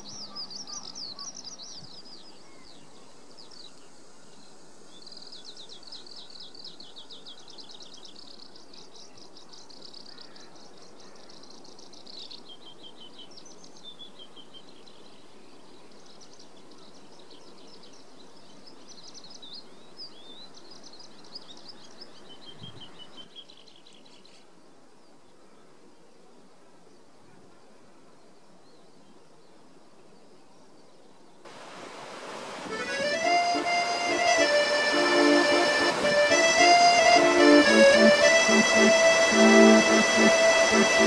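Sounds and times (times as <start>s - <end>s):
songbird trilling and chirping: 0.0s - 2.8s
distant outdoor noise: 31.5s - 41.0s.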